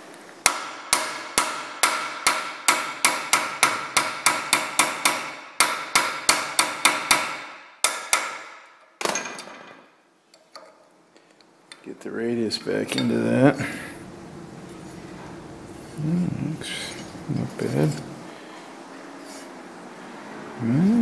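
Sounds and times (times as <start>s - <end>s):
hammer striking metal: 0.4s - 9.5s.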